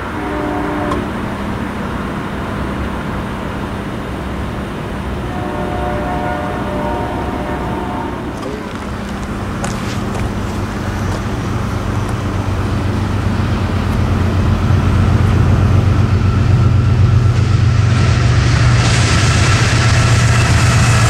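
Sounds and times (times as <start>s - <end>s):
diesel locomotive engine drone: 0.0s - 21.0s
hiss: 17.3s - 21.0s.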